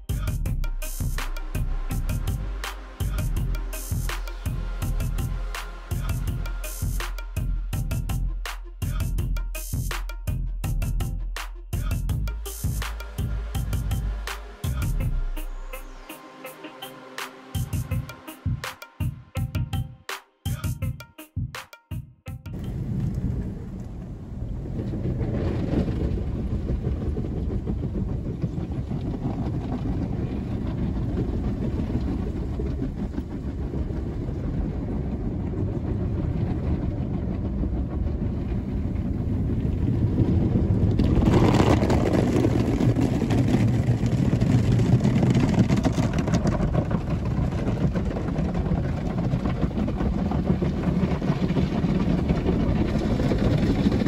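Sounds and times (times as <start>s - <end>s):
car wash low rumble: 22.6s - 54.0s.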